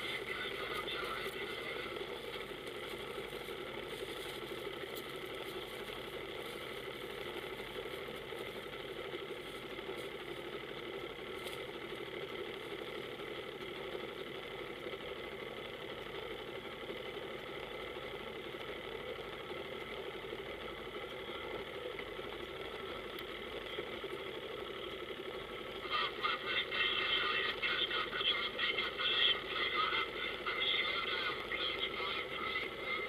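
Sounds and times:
voice over marine radio: 0:00.0 - 0:02.6, 0:25.8 - 0:33.0
boat engine idling: 0:00.0 - 0:33.0.

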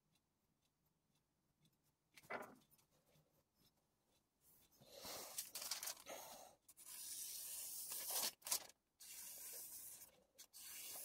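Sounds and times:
paper rustling: 0:05.3 - 0:06.1, 0:07.9 - 0:08.7
knife slicing through paper: 0:06.8 - 0:09.9.

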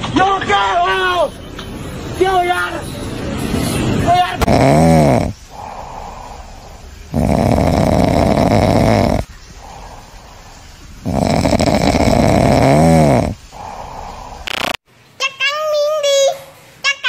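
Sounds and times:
loud rasping snoring: 0:04.4 - 0:14.8
quiet breathing: 0:05.3 - 0:14.8.

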